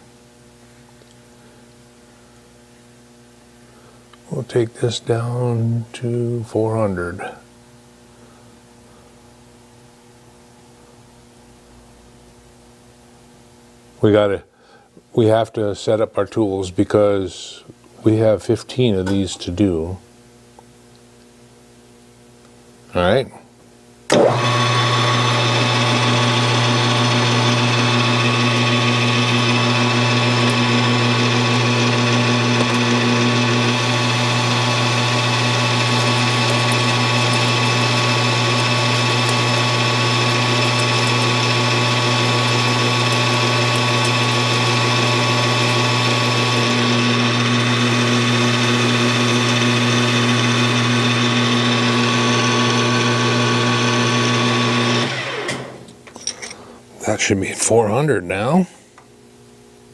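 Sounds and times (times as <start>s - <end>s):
metal lathe humming and whining: 24.1s - 56.3s.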